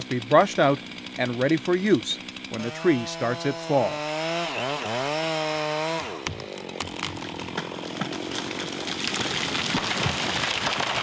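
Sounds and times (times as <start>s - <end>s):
chainsaw running at high revs: 0.0s - 11.0s
wood cracking as tree falls: 6.7s - 11.0s.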